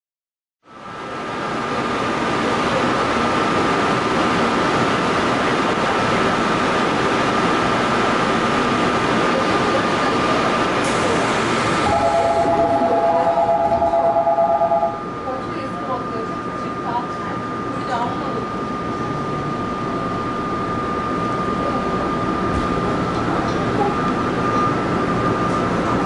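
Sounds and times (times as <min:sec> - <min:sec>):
subway train rumble in tunnel: 0:00.6 - 0:26.0
steady high tone: 0:11.8 - 0:15.4.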